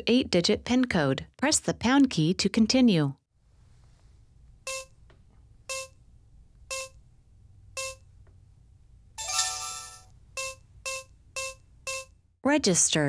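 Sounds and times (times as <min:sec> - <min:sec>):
keypad beeping: 0:04.7 - 0:05.0, 0:05.7 - 0:06.0, 0:06.7 - 0:07.0, 0:07.8 - 0:08.0, 0:09.2 - 0:12.2.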